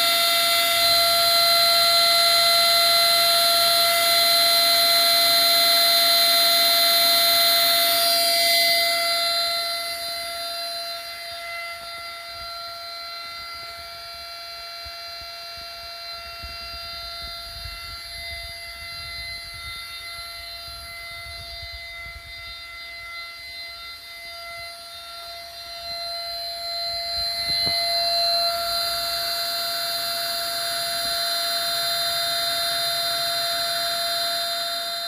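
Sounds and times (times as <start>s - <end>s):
mill spindle whining: 0.0s - 35.0s.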